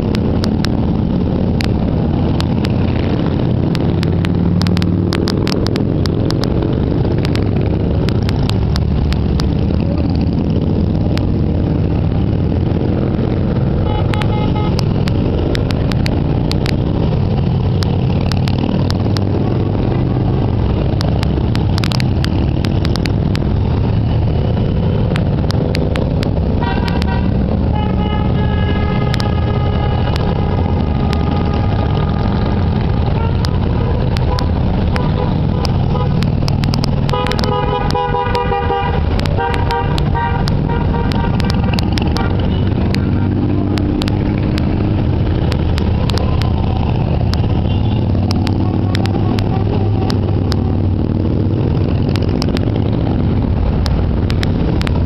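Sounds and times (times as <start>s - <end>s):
motorcycles riding past: 0.0s - 55.0s
horns tooting: 13.6s - 17.4s, 26.4s - 44.0s, 44.6s - 50.8s.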